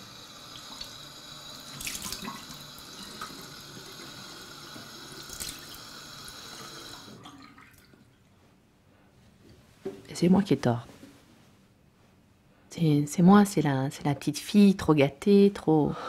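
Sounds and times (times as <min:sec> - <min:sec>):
tap running into sink: 0:01.7 - 0:03.4
water splashes: 0:01.7 - 0:03.4, 0:05.3 - 0:05.8.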